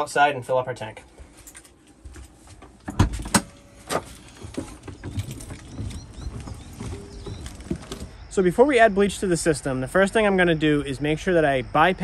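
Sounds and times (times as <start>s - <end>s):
footsteps and low thumps: 4.3s - 8.3s.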